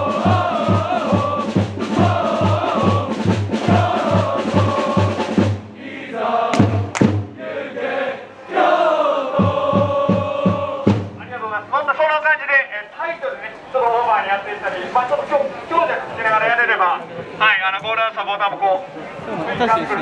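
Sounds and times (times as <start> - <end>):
bass drum beating: 0.0 - 5.6, 6.5 - 7.4, 9.4 - 11.3
crowd chanting: 0.0 - 11.2
murmur of voices: 0.0 - 20.0.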